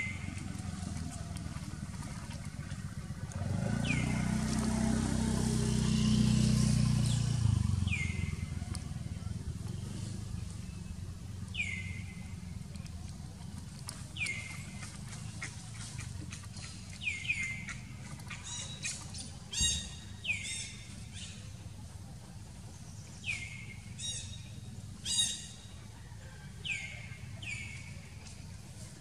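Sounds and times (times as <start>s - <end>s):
bird calling: 3.4s - 4.4s, 7.0s - 21.6s, 23.2s - 25.8s.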